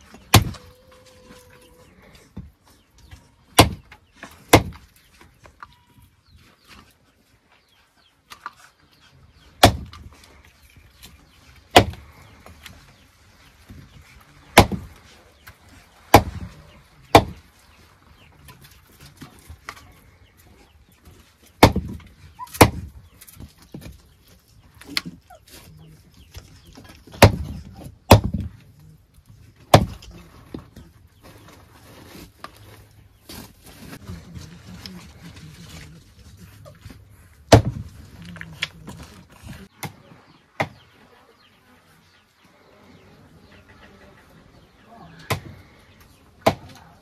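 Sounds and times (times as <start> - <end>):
sharp hard knocks: 3.6 - 3.9, 4.5 - 4.8, 9.6 - 10.0, 11.7 - 12.0, 14.6 - 14.9, 16.1 - 16.4, 17.1 - 17.4, 21.6 - 22.9, 27.2 - 28.5, 29.7 - 30.0, 37.5 - 37.8.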